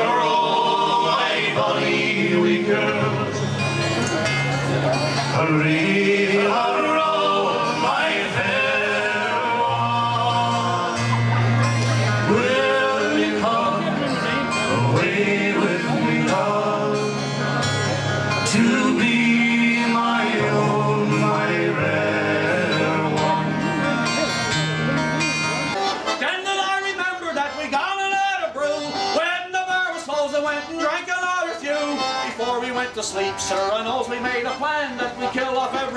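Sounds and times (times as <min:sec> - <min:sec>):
man singing: 0:00.0 - 0:03.4, 0:05.3 - 0:11.2, 0:12.3 - 0:17.2, 0:18.4 - 0:23.9, 0:26.2 - 0:34.2
acoustic guitars: 0:00.0 - 0:35.9
bass: 0:00.0 - 0:35.9.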